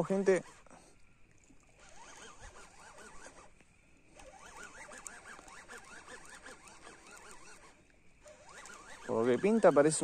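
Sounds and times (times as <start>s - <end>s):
fishing reel cranking chatter: 0.0s - 0.8s, 1.6s - 10.0s.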